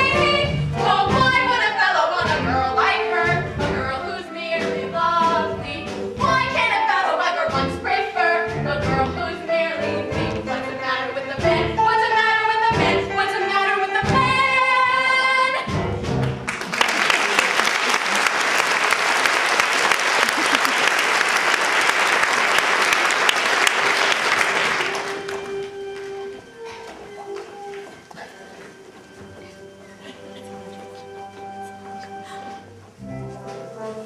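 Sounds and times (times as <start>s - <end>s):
stage cast singing: 0.0s - 15.6s
audience applause: 16.4s - 26.2s.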